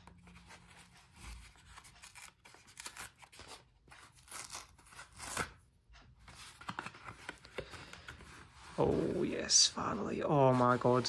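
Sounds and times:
paper envelope tearing: 1.2s - 5.6s.

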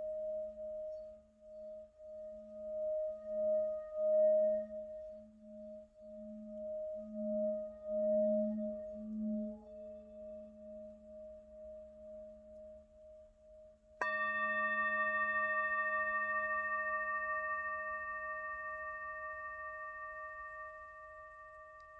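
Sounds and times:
mallet striking singing bowl: 14.0s - 21.9s
singing bowl ringing: 14.0s - 21.9s.

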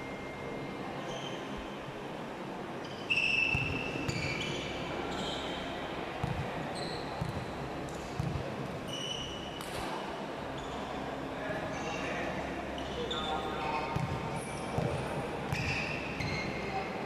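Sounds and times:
murmur of a hall: 0.0s - 17.0s
shoe squeaks on court: 2.8s - 5.6s, 6.7s - 7.3s, 8.9s - 9.9s, 14.0s - 16.6s.

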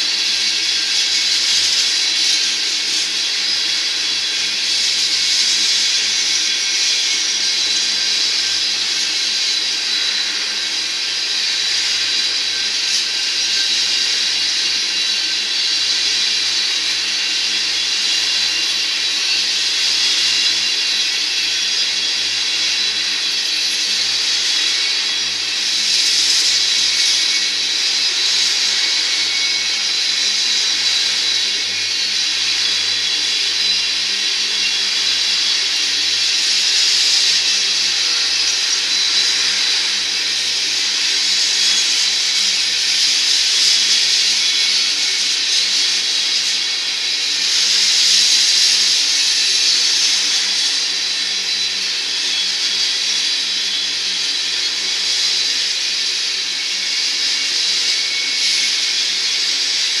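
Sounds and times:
train wheels hissing on rails: 0.0s - 60.0s.

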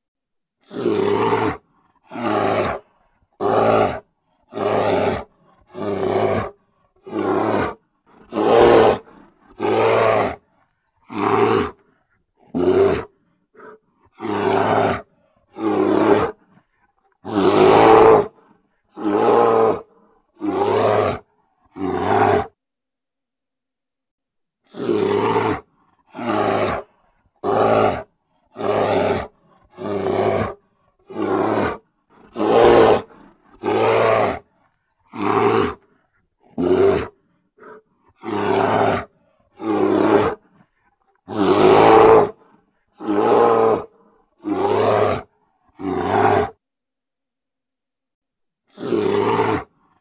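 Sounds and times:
bear roaring: 0.6s - 22.6s, 24.7s - 46.6s, 48.7s - 50.0s.

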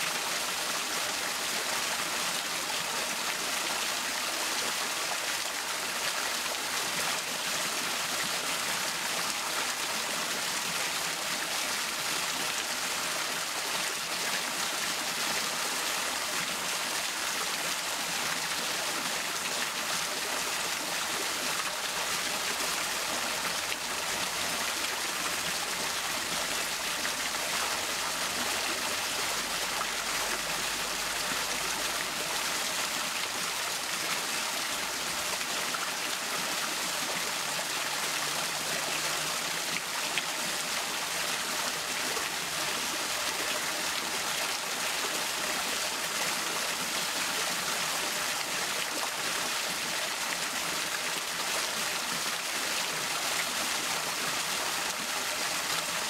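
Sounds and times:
fountain water splashing over rocks: 0.0s - 56.0s.

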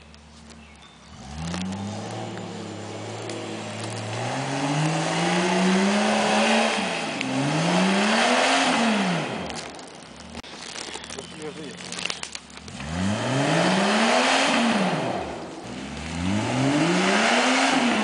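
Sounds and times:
engine revving under load: 1.0s - 9.7s, 12.6s - 18.0s.

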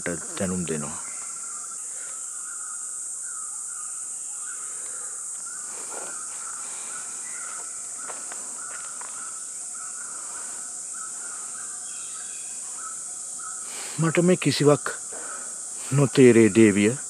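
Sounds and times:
high-pitched insect chirring: 0.0s - 17.0s
pulsing insect chirp: 0.0s - 17.0s.

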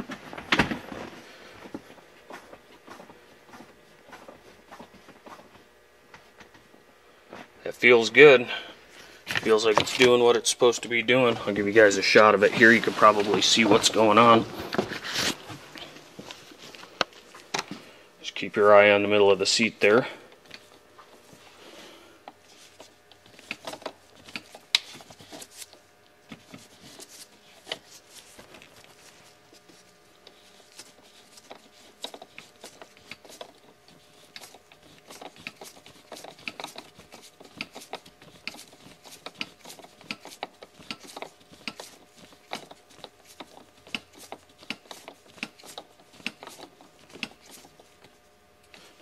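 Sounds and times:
seat adjuster clicking and rubbing: 30.3s - 47.8s.

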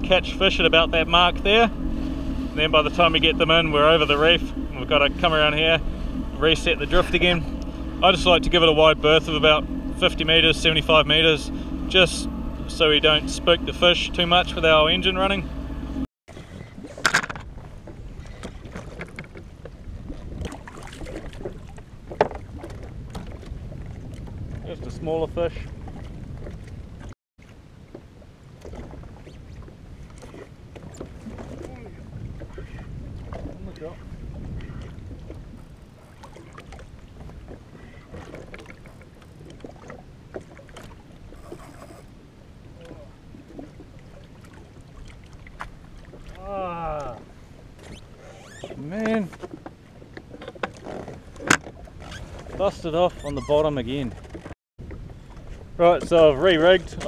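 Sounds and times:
wind on microphone: 0.0s - 27.1s, 28.7s - 40.0s
water lapping against hull: 0.0s - 57.0s.

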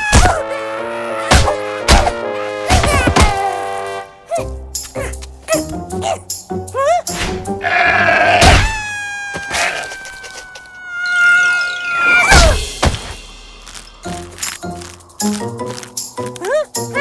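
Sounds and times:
cartoon music: 16.2s - 17.0s.

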